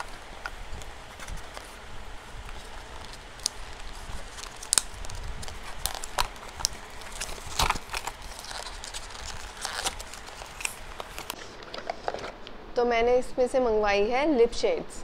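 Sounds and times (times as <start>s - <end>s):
cardboard tearing and snapping: 0.0s - 12.4s.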